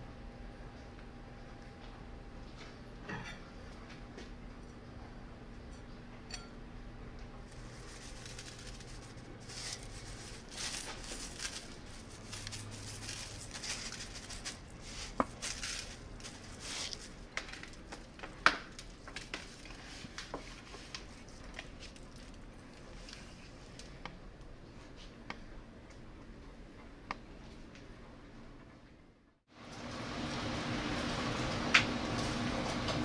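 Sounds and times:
hands rubbing chicken skin: 0:07.5 - 0:18.1
seasoning pattering on chicken: 0:07.5 - 0:18.1.

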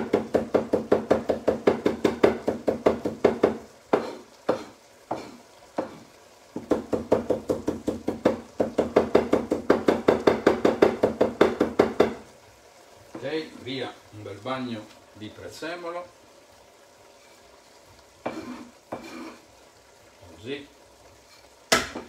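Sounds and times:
knife chopping on cutting board: 0:00.0 - 0:06.0.

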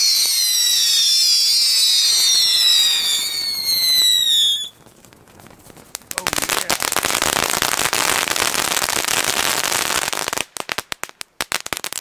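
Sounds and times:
fireworks whistling: 0:00.0 - 0:04.9.

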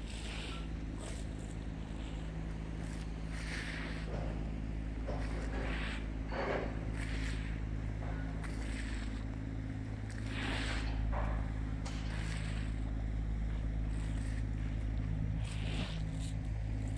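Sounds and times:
diesel engines idling: 0:00.0 - 0:16.9
short hissing swells: 0:05.2 - 0:06.2, 0:10.1 - 0:11.0.

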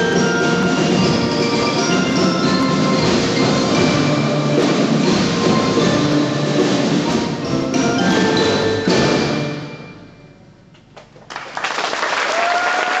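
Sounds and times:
percussion ensemble with mallets: 0:00.0 - 0:10.7
audience applauding: 0:11.0 - 0:13.0.

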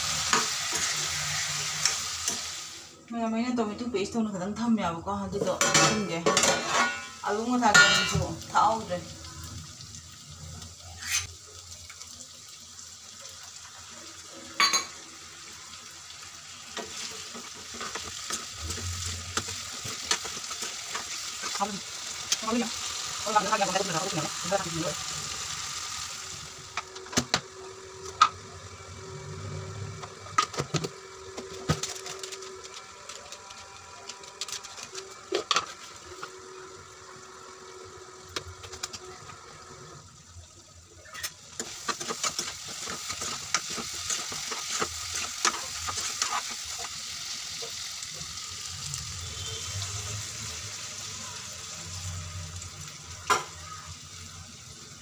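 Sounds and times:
chicken sizzling in oil: 0:00.0 - 0:03.0, 0:05.4 - 0:55.0
metal spatula scraping pan: 0:05.5 - 0:08.2, 0:11.0 - 0:11.3, 0:41.2 - 0:47.0.

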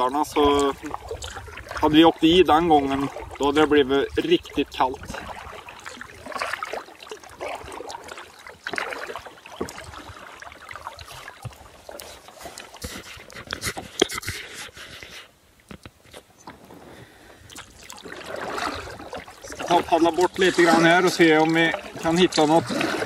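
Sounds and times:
paddle splashing water: 0:00.0 - 0:23.0
water washing along hull: 0:00.0 - 0:23.0
small knocks and clicks: 0:15.6 - 0:16.6.

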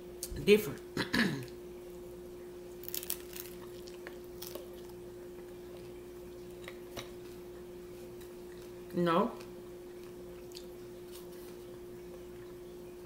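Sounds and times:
faint steady hum: 0:00.0 - 0:13.0
taco crunching and chewing: 0:02.7 - 0:07.4, 0:08.1 - 0:12.6.

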